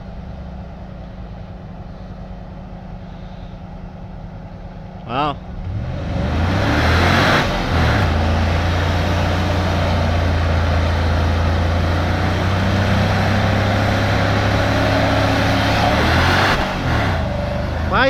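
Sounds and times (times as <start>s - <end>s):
tires churning in mud: 0.0s - 18.0s
truck engine revving: 0.0s - 18.0s
people talking: 5.0s - 5.4s, 17.5s - 18.0s.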